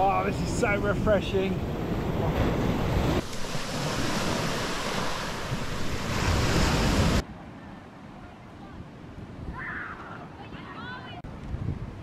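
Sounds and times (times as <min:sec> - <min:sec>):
ocean surf washing onto beach: 0:00.0 - 0:07.2
wind buffeting microphone: 0:08.6 - 0:12.0.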